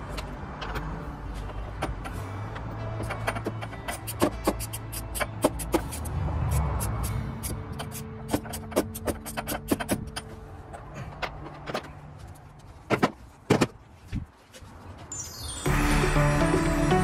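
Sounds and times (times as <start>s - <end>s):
ratchet wrench clicking: 3.0s - 10.2s.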